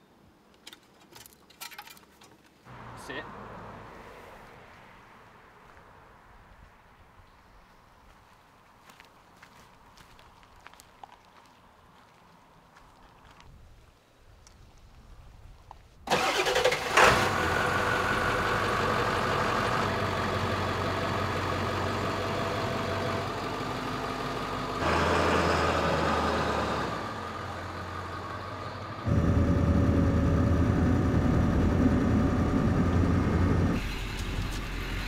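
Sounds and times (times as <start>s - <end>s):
diesel engine running: 16.1s - 35.0s.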